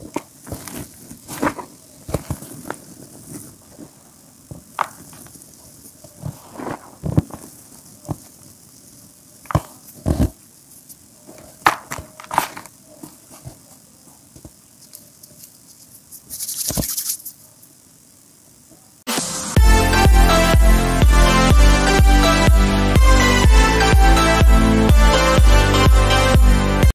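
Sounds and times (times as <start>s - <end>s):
dry rustle of powder: 0.3s - 11.3s, 12.9s - 17.5s
hands crushing chalk: 14.4s - 17.3s.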